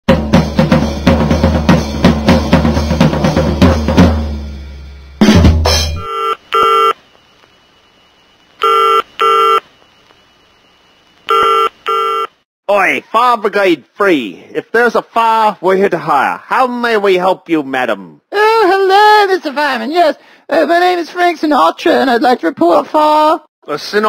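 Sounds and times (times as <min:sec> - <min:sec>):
fast drum-kit music: 0:00.1 - 0:06.0
electronic telephone ringing: 0:06.0 - 0:07.0, 0:08.6 - 0:09.6, 0:11.3 - 0:12.4.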